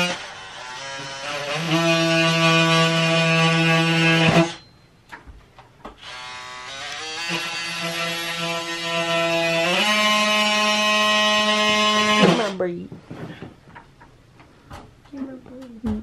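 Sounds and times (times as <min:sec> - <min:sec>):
drywall cutting tool whining: 0:00.0 - 0:04.7, 0:06.0 - 0:12.6.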